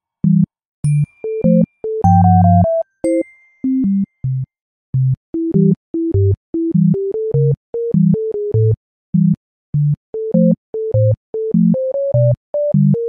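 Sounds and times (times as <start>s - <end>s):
bouncy synthesizer tune: 1.5s - 3.2s
bass line: 2.1s - 2.7s.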